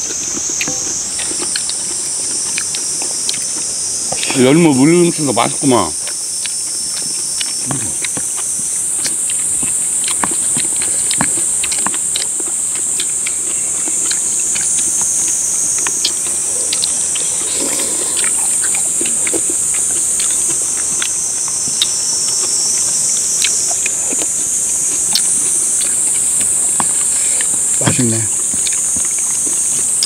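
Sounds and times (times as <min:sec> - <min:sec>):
high-pitched insect chorus: 0:00.0 - 0:30.0.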